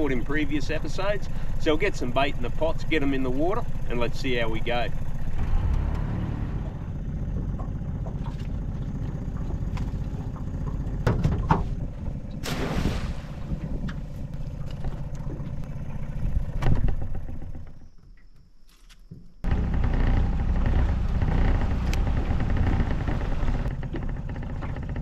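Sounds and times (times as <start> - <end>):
gear clattering on aluminium dinghy: 0.0 - 12.5, 13.4 - 18.4, 19.1 - 25.0
outboard motor idling: 0.0 - 18.4, 19.4 - 25.0
splash in water: 12.4 - 15.6.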